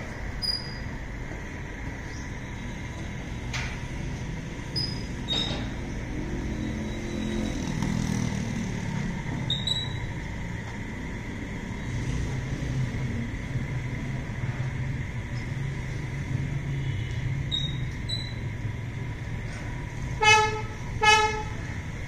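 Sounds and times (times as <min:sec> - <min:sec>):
engine rumble: 0:00.0 - 0:22.0.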